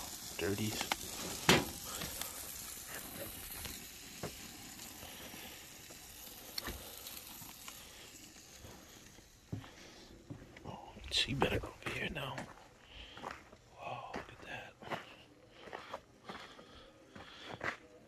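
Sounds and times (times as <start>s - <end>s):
burgers sizzling on a grill: 0.0s - 11.8s
fat crackling: 0.0s - 13.7s.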